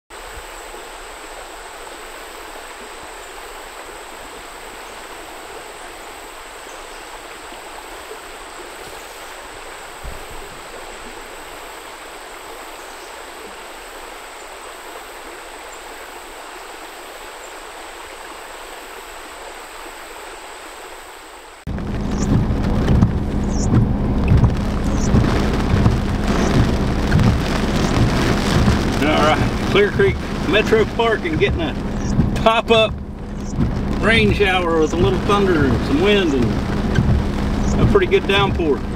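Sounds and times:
creek trickling over stones: 0.1s - 38.9s
heavy rain downpour: 0.1s - 38.9s
low thump: 21.7s - 38.9s
wind buffeting microphone: 21.7s - 38.9s.

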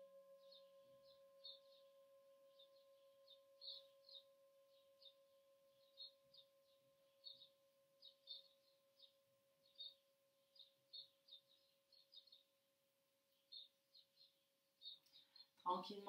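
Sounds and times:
singing bowl ringing: 0.0s - 8.5s
small birds chirping: 0.3s - 16.0s.

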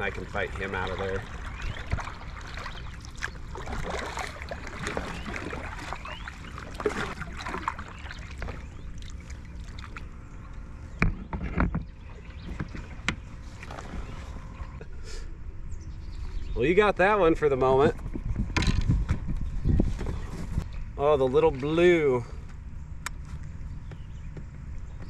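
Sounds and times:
paddle splashing in water: 0.0s - 10.2s, 12.0s - 14.6s
paddle knocking on kayak: 3.5s - 7.5s.

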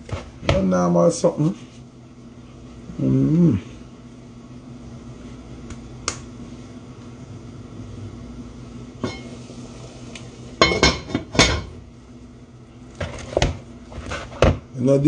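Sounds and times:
low steady hum: 0.0s - 15.0s
metal cookware clanking: 9.0s - 9.3s, 10.6s - 11.8s.

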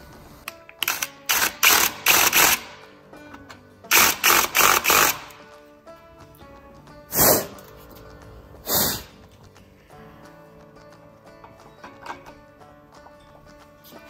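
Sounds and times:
faint background music: 0.0s - 14.0s
electric drill bursts: 0.8s - 2.8s, 3.9s - 5.4s.

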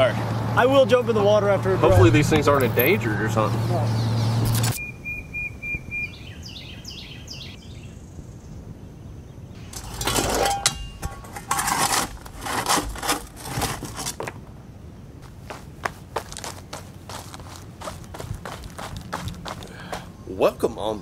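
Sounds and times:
bird chirping: 1.9s - 9.8s
shovel scraping crushed rock: 9.8s - 14.3s.

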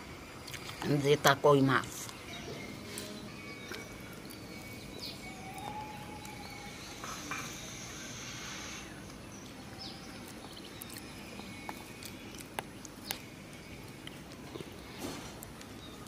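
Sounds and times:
high hiss: 6.7s - 9.1s.

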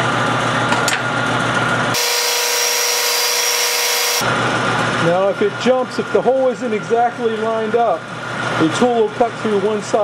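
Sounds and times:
hissy metal cutting noise: 2.0s - 4.2s
lathe motor hum: 2.0s - 5.0s.

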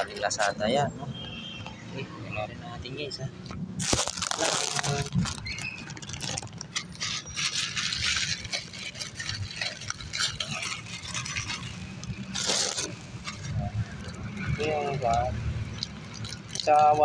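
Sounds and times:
plastic packaging rustling: 3.8s - 17.0s
small irregular clicks: 5.1s - 17.0s.

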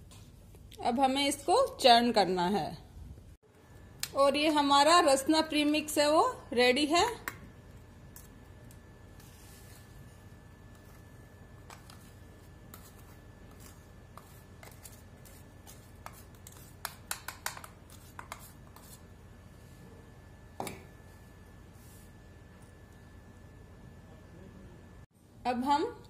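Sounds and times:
spoon scraping and tapping steel jar: 16.0s - 18.5s.

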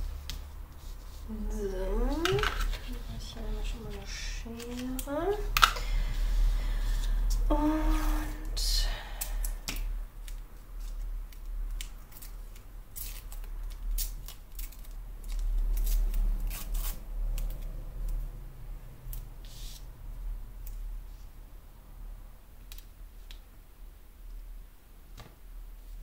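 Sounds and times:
low steady hum: 0.0s - 26.0s
paper rustling: 0.2s - 5.7s
tape tearing and crackling: 4.0s - 5.8s, 9.7s - 18.2s.

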